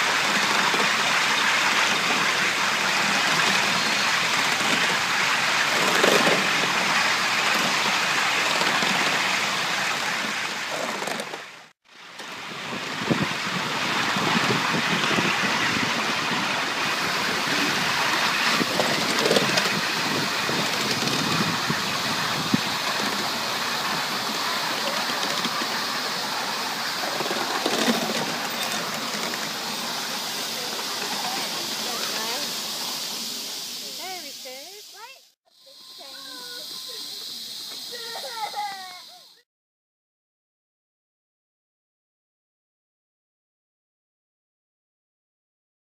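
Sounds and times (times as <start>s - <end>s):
steam hissing: 0.0s - 39.4s.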